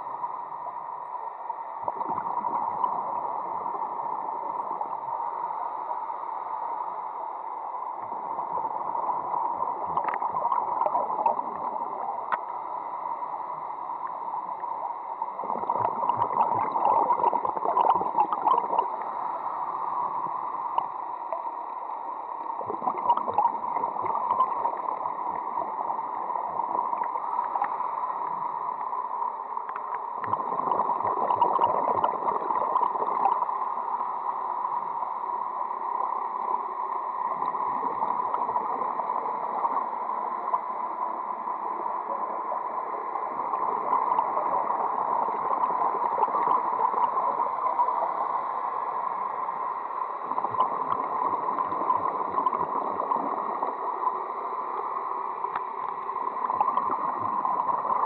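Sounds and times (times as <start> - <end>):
underwater hiss: 0.0 - 58.0
bubbling and crackling: 1.7 - 5.2, 7.9 - 12.7, 15.2 - 21.5, 22.3 - 33.8, 36.0 - 48.4, 50.0 - 58.0.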